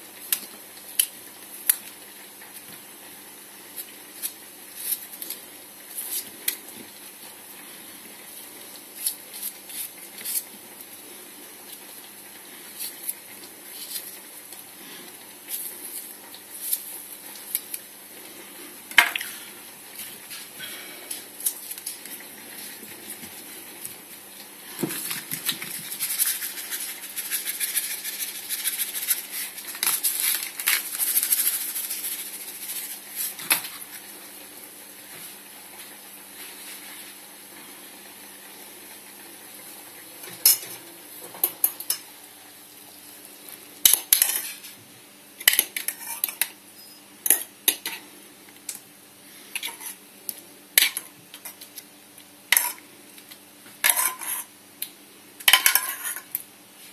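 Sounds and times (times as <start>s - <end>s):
hands rustling over pastry: 24.6s - 34.2s.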